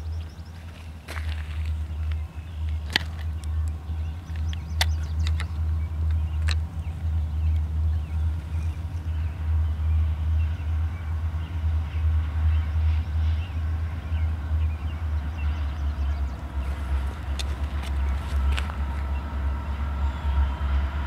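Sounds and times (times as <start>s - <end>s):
distant diesel locomotives rumbling: 0.0s - 21.0s.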